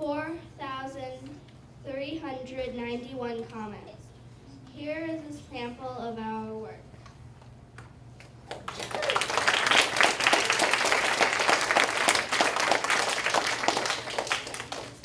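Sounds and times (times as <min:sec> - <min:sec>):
children applauding: 0:08.5 - 0:15.0.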